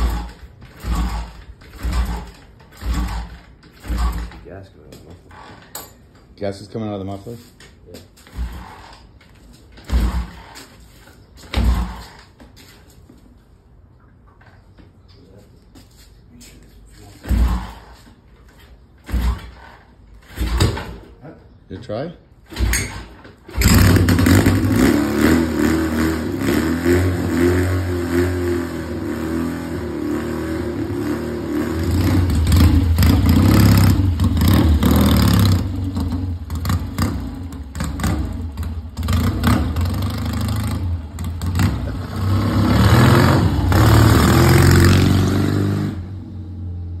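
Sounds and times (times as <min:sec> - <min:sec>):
motorcycle engine revving: 0:00.0 - 0:05.9, 0:08.2 - 0:12.4, 0:17.1 - 0:18.2, 0:19.0 - 0:21.1, 0:22.4 - 0:47.0
motorcycle kick-start: 0:00.0 - 0:06.0, 0:08.2 - 0:12.5, 0:17.2 - 0:21.2, 0:22.4 - 0:25.3, 0:31.8 - 0:42.6.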